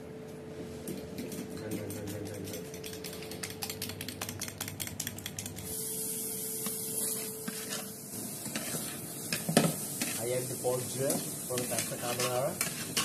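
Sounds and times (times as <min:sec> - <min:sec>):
utensil clicking against bowl: 0:00.9 - 0:05.6
pork sizzling in a pan: 0:05.7 - 0:13.0.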